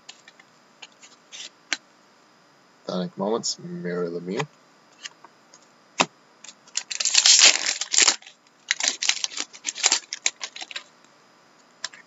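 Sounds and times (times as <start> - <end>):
cards rustling and snapping: 6.4 - 10.9.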